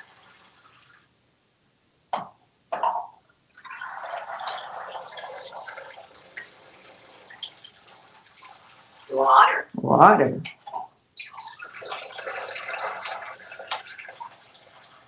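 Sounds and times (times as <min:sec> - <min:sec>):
water showering onto plastic tub: 0:00.0 - 0:01.1, 0:03.6 - 0:09.1, 0:10.5 - 0:15.0
water dripping: 0:02.2 - 0:09.1, 0:10.4 - 0:15.0.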